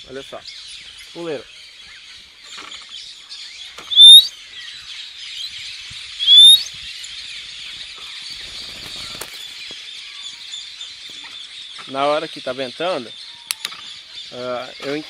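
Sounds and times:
person whistling rising whistles: 3.9s - 4.3s, 6.2s - 6.7s
bird wing flapping: 8.4s - 9.6s.

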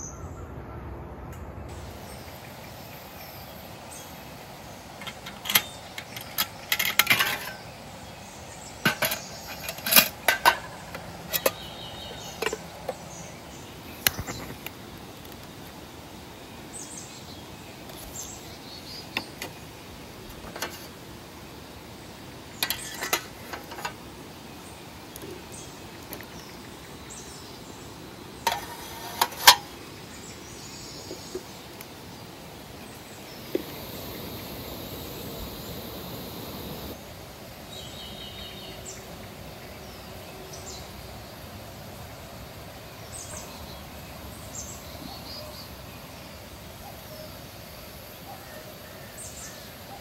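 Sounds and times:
small birds chirping: 1.7s - 41.6s.

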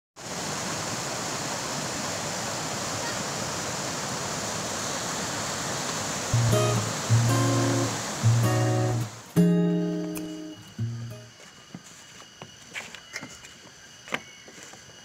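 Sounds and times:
mountain stream rushing over rocks: 0.2s - 11.2s
acoustic guitar strum: 6.4s - 11.3s.

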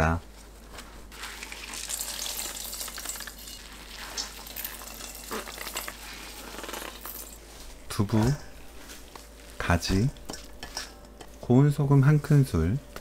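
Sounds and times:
wet squishing cloth: 0.7s - 2.3s.

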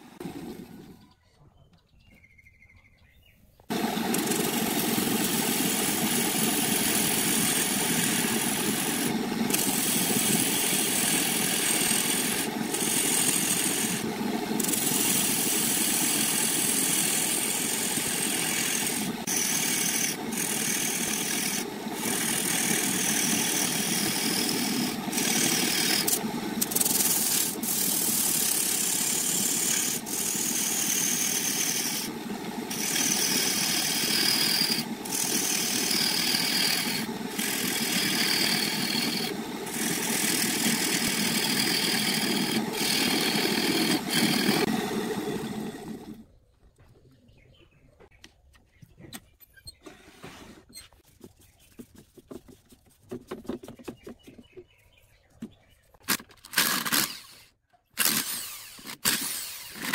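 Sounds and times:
wood lathe tool scraping: 3.7s - 46.2s, 56.1s - 59.9s.

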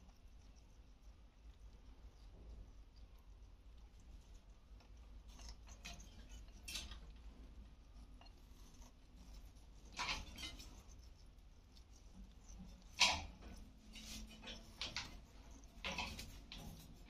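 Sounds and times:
bird feet on wire: 5.2s - 7.2s, 9.1s - 11.1s, 12.1s - 17.0s.

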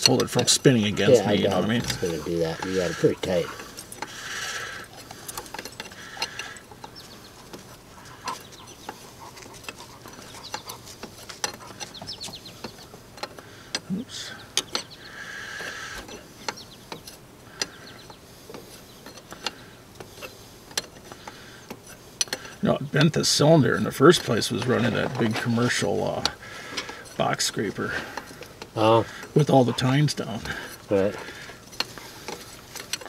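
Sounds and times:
wrenches clinking on fittings: 0.0s - 9.0s, 16.0s - 33.0s.

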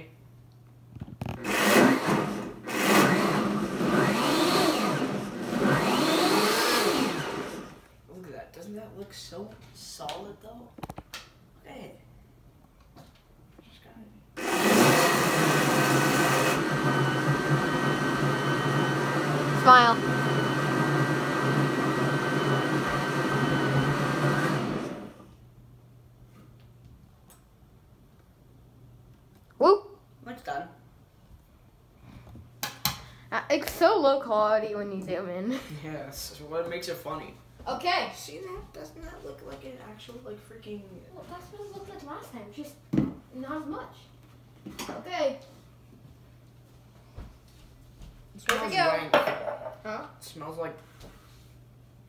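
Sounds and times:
countertop blender running: 1.3s - 7.8s, 14.4s - 25.4s.

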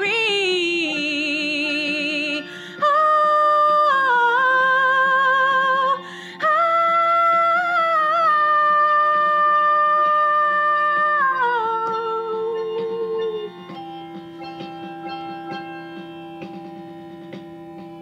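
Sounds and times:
woman singing long notes: 0.0s - 13.5s
stringed instrument accompaniment: 0.0s - 18.0s.

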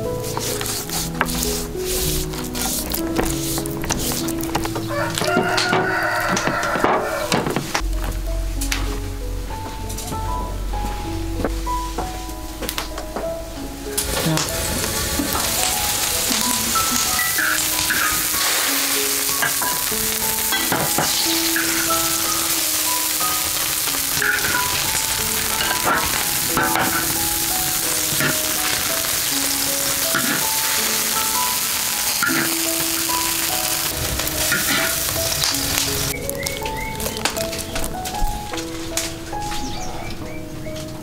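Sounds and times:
broth boiling and sizzling in wok: 0.0s - 9.1s, 13.6s - 39.2s
soft melodic background tune: 0.0s - 41.0s
ladle clinking and scraping wok: 14.0s - 36.2s.

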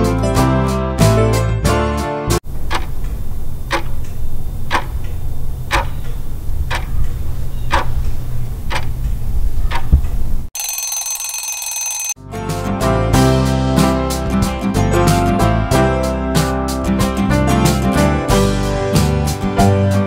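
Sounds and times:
clock ticking: 2.6s - 7.1s, 7.7s - 8.1s, 8.7s - 8.9s
alarm clock ringing: 10.6s - 12.2s.

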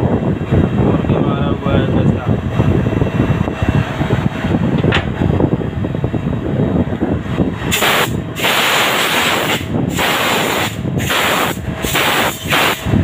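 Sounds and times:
loud spraying hiss: 7.7s - 12.9s.

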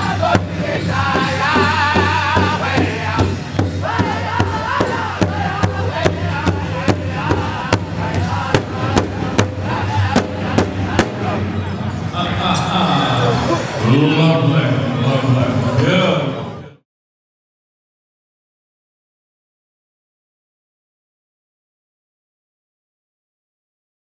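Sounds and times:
large drum steady beat: 0.0s - 11.7s
men singing high: 0.0s - 11.7s.

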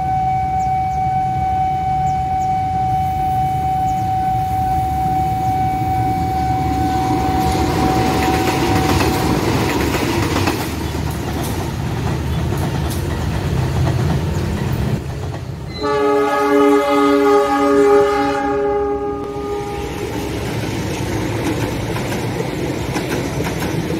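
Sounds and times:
locomotive horn blasts: 0.0s - 9.2s, 15.7s - 20.1s
warning tone: 0.0s - 9.2s, 15.8s - 19.9s
locomotive engine rumble: 0.0s - 23.9s
wheels on rails: 3.5s - 15.8s, 19.2s - 23.9s.

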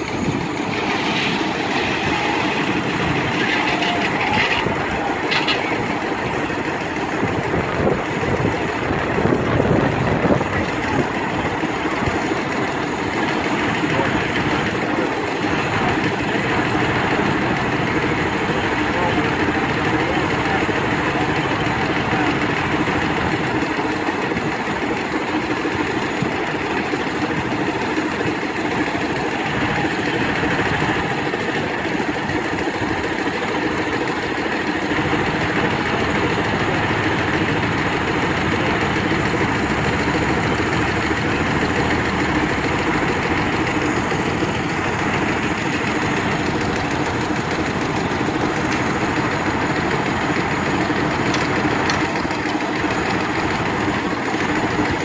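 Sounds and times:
circular saw blade spinning: 0.0s - 7.5s
engine running: 0.0s - 55.0s.

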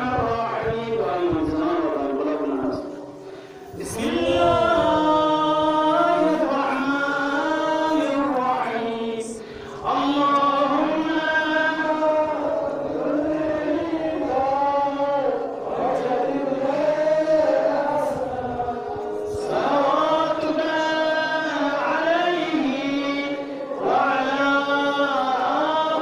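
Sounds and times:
men singing a mourning chant: 0.0s - 26.0s.

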